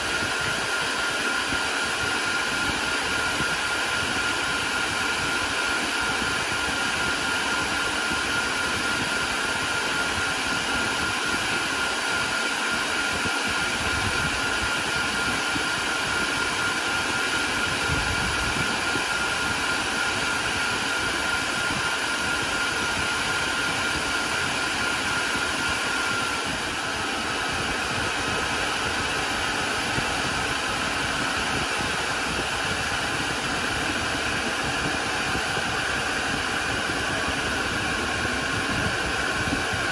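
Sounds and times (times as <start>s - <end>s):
cooling fans whirring: 0.0s - 39.9s.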